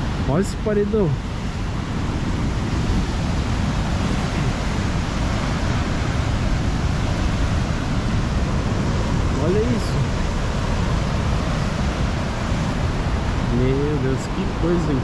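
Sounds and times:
rough sea surging on rocks: 0:00.0 - 0:15.0
wind on microphone: 0:00.0 - 0:15.0.

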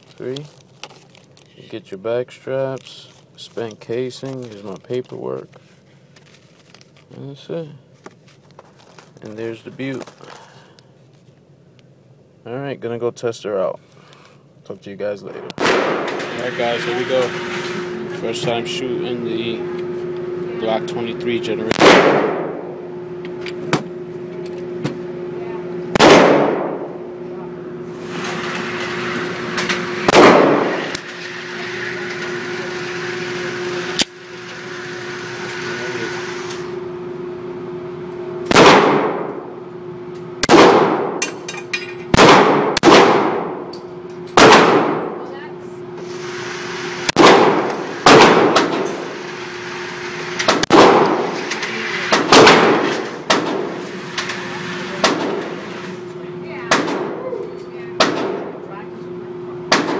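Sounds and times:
steady hum: 0:00.0 - 0:59.9
pistol shots echoing: 0:21.7 - 0:22.5, 0:26.0 - 0:26.8, 0:30.1 - 0:30.8, 0:38.5 - 0:39.2, 0:42.1 - 0:43.6.

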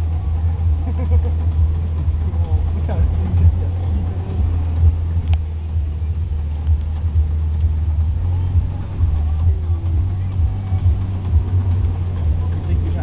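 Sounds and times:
off-road vehicle engine rumble: 0:00.0 - 0:13.0.

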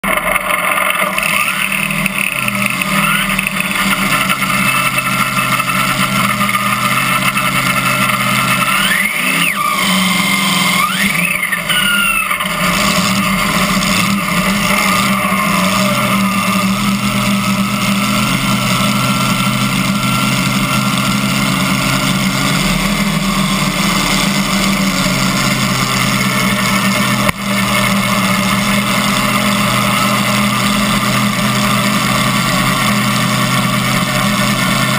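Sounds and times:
rising and falling whines: 0:00.0 - 0:34.9
tractor engine idling loudly: 0:00.0 - 0:34.9.

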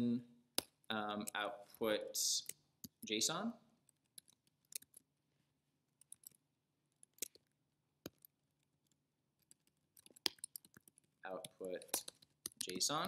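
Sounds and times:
computer keyboard clicks: 0:09.4 - 0:12.8.

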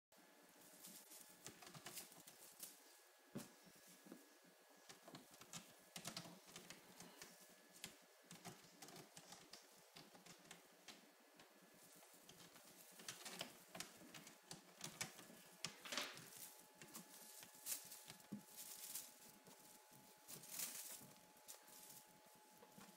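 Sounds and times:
foil ball crinkling: 0:15.8 - 0:22.9.

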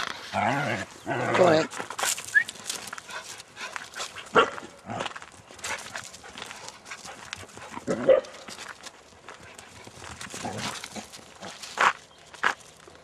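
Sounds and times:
rustling and crackling: 0:00.0 - 0:13.0
dog barking: 0:04.3 - 0:04.6, 0:07.9 - 0:08.4.

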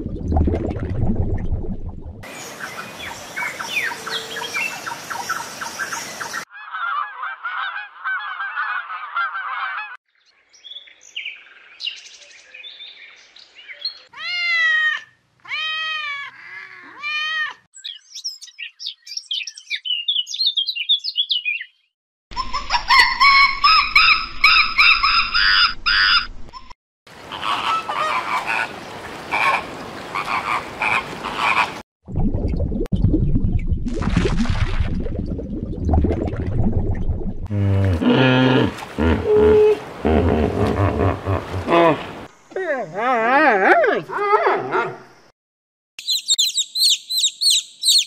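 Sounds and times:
geese honking: 0:06.6 - 0:10.0
mixed animal calls and noise: 0:27.3 - 0:31.8
arching animal calls: 0:37.5 - 0:42.3
high chirps: 0:46.0 - 0:48.0.

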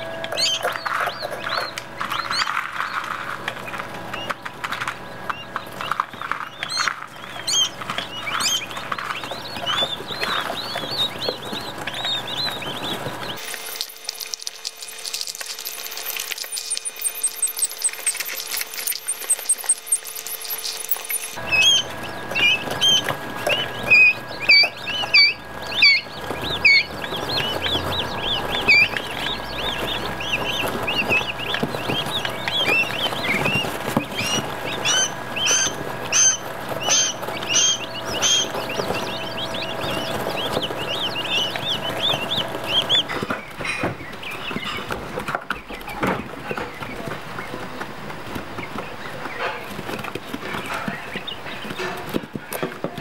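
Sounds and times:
steady hum: 0:00.0 - 0:52.2
chicks peeping: 0:00.0 - 0:53.0
high rapid twittering: 0:05.2 - 0:43.3.

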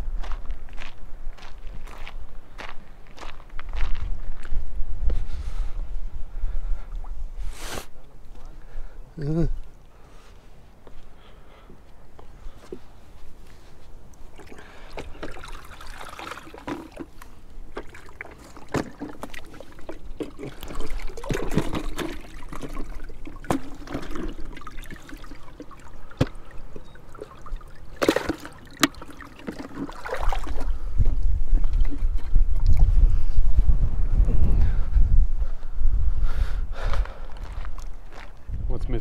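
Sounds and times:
wind rumble on microphone: 0:00.0 - 0:07.6, 0:30.3 - 0:39.0
waves lapping against rocks: 0:14.1 - 0:33.0.

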